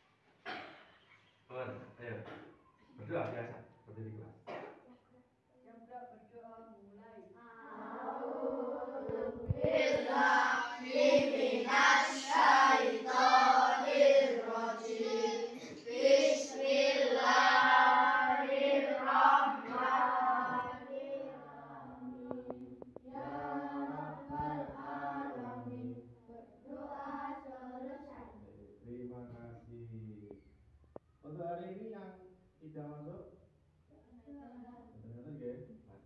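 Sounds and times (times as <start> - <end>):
children chanting a prayer: 7.5 - 28.4.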